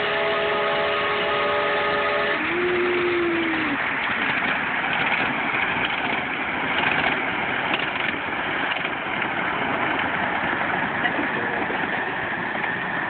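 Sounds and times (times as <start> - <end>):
miniature train rumbling on track: 0.0 - 13.0.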